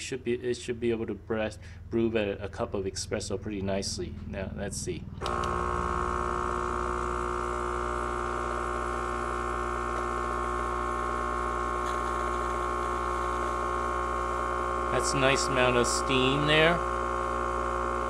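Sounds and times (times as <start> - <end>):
espresso machine pump humming: 5.2 - 18.0.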